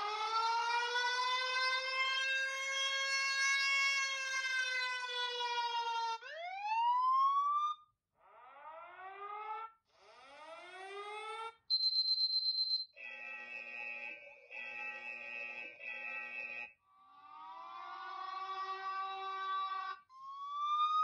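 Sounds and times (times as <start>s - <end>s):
rising siren whoops: 0.0s - 7.8s, 8.7s - 11.5s, 17.2s - 21.0s
siren wail: 0.0s - 11.6s, 17.1s - 21.0s
pulsing high beep: 11.7s - 12.9s.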